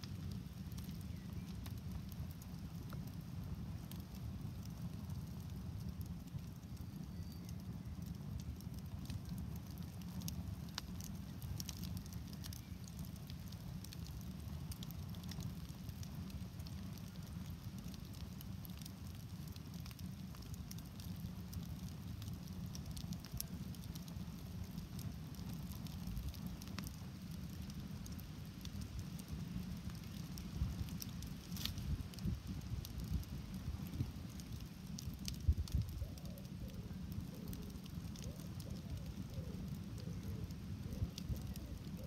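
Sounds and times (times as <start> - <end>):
campfire crackling and popping: 0.0 - 42.0
fire low rumble: 0.0 - 42.0.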